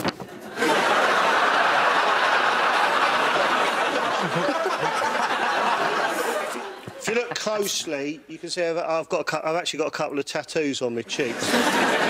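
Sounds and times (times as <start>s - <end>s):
audience laughing: 0.4s - 8.0s, 11.0s - 12.0s.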